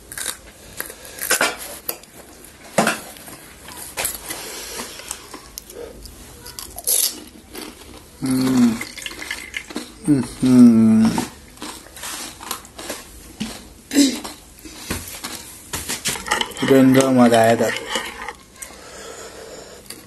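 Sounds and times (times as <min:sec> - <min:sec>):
person humming: 0:08.2 - 0:08.8, 0:10.0 - 0:11.3
plates and utensils clinking: 0:16.0 - 0:18.8.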